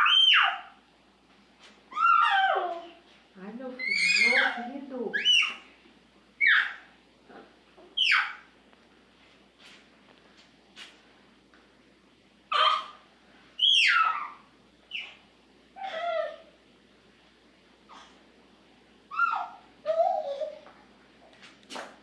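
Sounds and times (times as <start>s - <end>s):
bird harsh calls: 5.2s - 5.6s, 8.0s - 8.4s, 13.6s - 15.2s.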